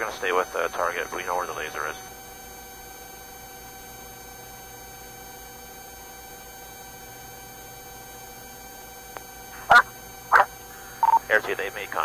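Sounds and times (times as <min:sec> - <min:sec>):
radio hiss: 0:00.0 - 0:02.2, 0:09.6 - 0:12.0
faint electrical hum: 0:00.0 - 0:12.0
thin steady tones: 0:09.5 - 0:12.0.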